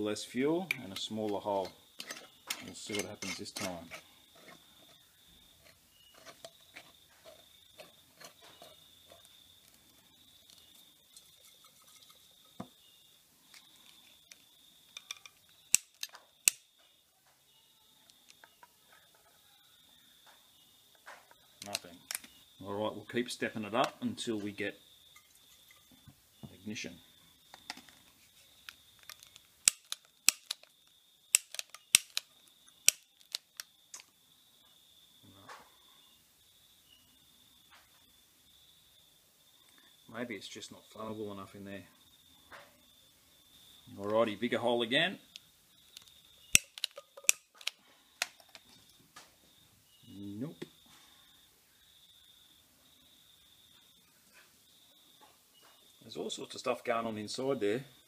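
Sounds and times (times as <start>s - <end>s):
metal lid turning on glass jar: 0.6s - 5.0s, 5.6s - 9.3s, 11.1s - 12.6s, 46.6s - 47.7s
loud sharp clicks: 15.7s - 16.7s, 29.6s - 30.7s, 31.3s - 34.1s, 46.0s - 48.4s.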